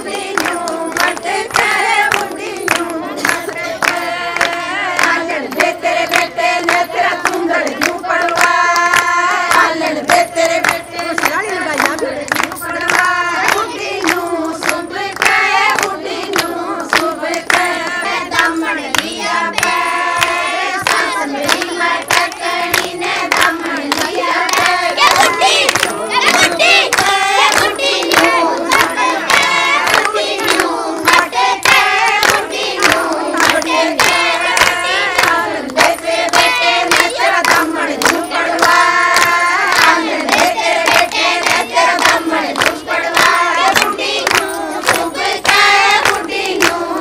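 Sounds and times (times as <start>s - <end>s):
rhythmic hand clapping: 0.0s - 47.0s
women singing folk song: 0.0s - 47.0s.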